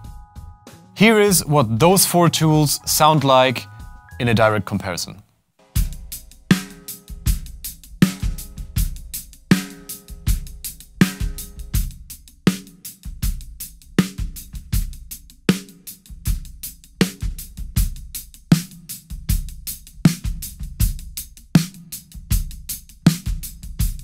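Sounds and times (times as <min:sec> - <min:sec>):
drum kit beat: 0:00.0 - 0:04.7, 0:05.6 - 0:24.0
snare drum backbeat: 0:05.8 - 0:12.6.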